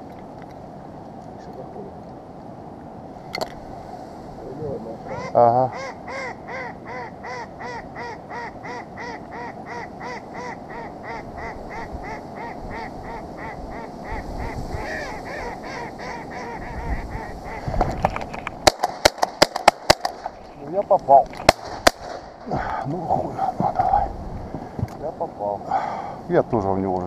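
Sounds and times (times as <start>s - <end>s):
shotgun fire: 18.6s - 20.3s, 21.4s - 22.4s.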